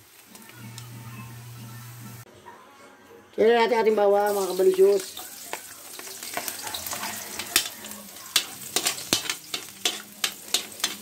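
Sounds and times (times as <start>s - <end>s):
garlic sizzling in oil: 0.0s - 2.2s, 4.2s - 11.0s
metal spatula scraping wok: 4.3s - 11.0s.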